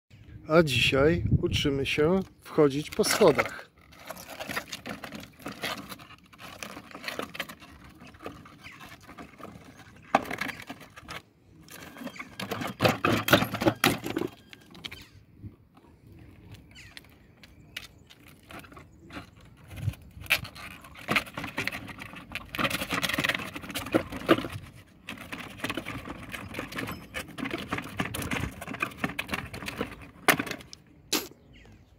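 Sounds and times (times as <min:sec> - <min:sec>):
wheels knocking on stairs: 0:11.8 - 0:14.6, 0:21.0 - 0:30.7.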